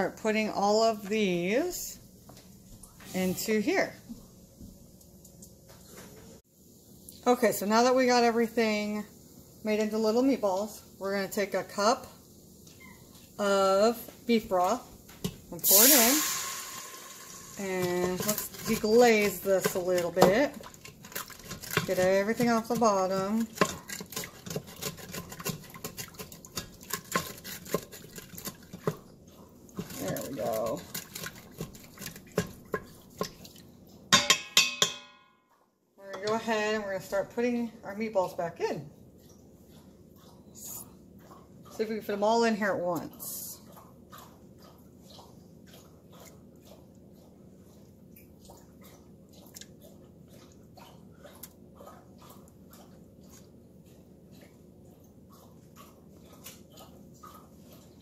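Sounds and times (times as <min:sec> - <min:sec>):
wooden spatula scraping pot: 0:13.4 - 0:33.6, 0:36.0 - 0:38.6.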